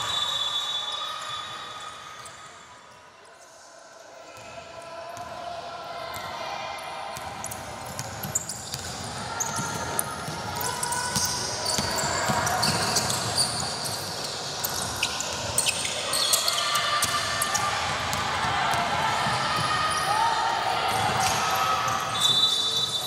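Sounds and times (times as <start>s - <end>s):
basketball bouncing on court: 7.2s - 13.6s, 17.0s - 20.0s
sneakers squeaking: 7.2s - 20.2s, 20.9s - 23.0s.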